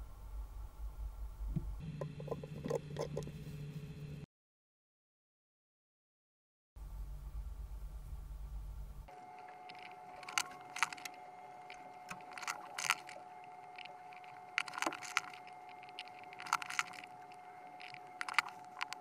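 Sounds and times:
faint steady whine: 0.0s - 4.3s, 6.8s - 19.0s
plastic parts clicking: 9.6s - 19.0s.

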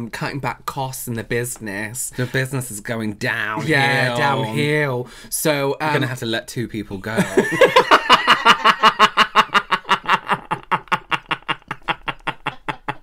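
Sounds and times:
men laughing hard: 7.2s - 13.0s.

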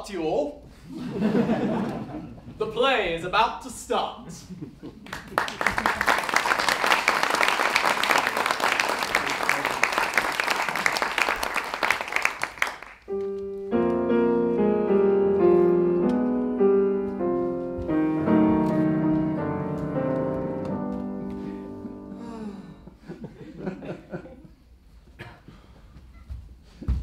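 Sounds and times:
audience applause: 5.0s - 13.1s
grand piano playing: 13.0s - 23.7s.

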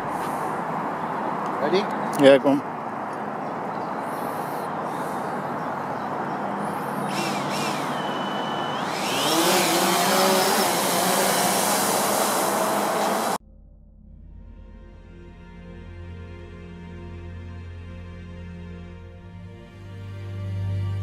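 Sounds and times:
drone propellers whirring: 6.4s - 13.4s
drone chirping tones: 7.0s - 13.4s.

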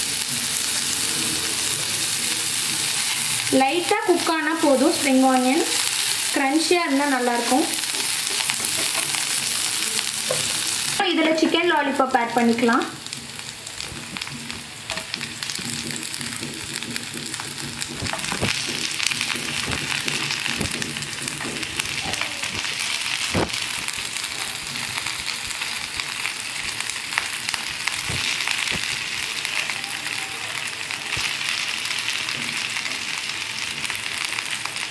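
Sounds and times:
sauce sizzling in frying pan: 0.0s - 34.9s.

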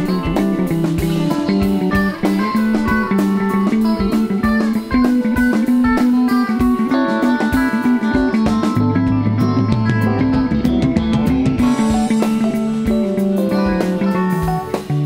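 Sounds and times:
bass guitar notes: 0.0s - 15.0s
drum kit with cymbals: 0.0s - 15.0s
electric guitars: 0.0s - 15.0s.

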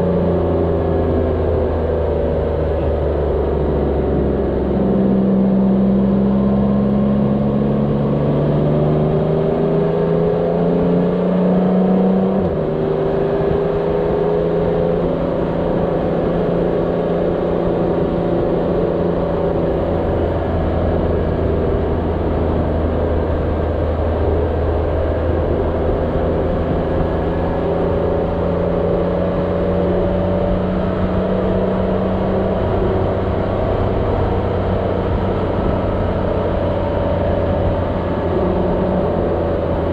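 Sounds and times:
wind and road noise: 0.0s - 39.9s
motorcycle engine running: 12.4s - 39.9s.

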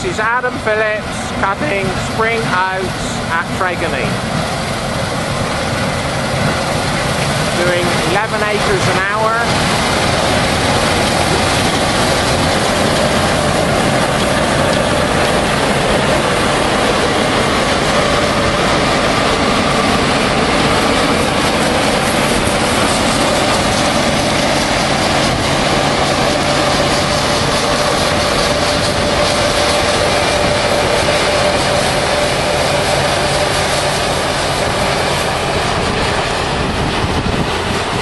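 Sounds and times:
combine harvester running: 0.0s - 38.0s
constant high hum: 0.0s - 38.0s.

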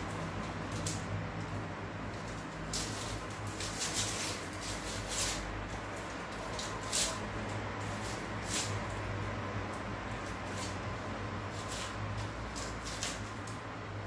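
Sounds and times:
onion skin crackling and rustling: 0.0s - 14.0s.

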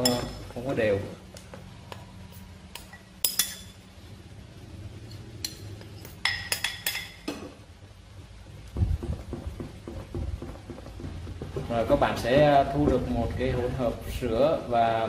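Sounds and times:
spoon clinking glass bowls: 0.0s - 0.5s, 2.7s - 3.9s, 5.4s - 7.5s.

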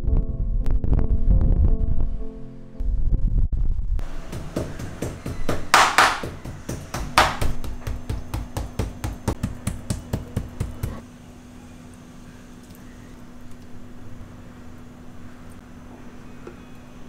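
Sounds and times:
faint steady hum: 2.4s - 17.0s
knife tapping meat on cutting board: 4.3s - 11.0s.

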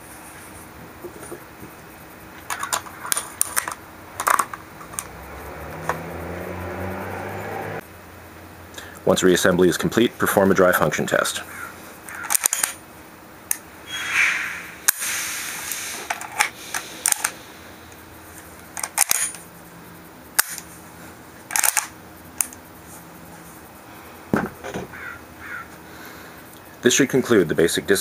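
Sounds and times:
shotgun action clicks and clacks: 12.2s - 12.8s, 21.5s - 22.0s.

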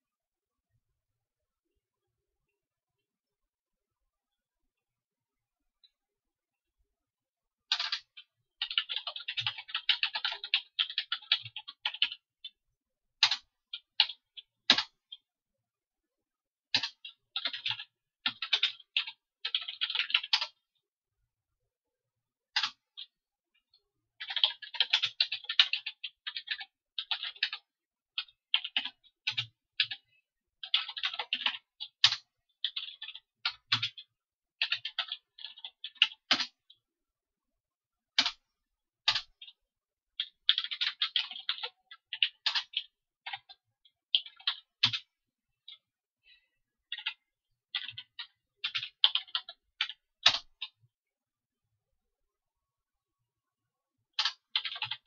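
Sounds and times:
computer keyboard typing: 7.7s - 12.6s, 13.2s - 15.3s, 16.7s - 20.7s, 22.5s - 23.2s, 24.2s - 36.8s, 38.2s - 38.4s, 39.0s - 39.6s, 40.2s - 45.9s, 46.8s - 50.8s, 54.2s - 55.0s.

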